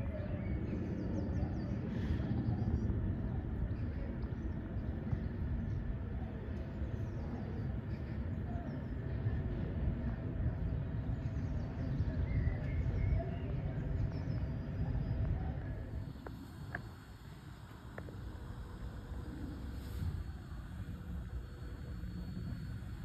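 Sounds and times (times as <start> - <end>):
aircraft rumble overhead: 0.0 - 23.0
faint bird chirps: 10.5 - 15.9.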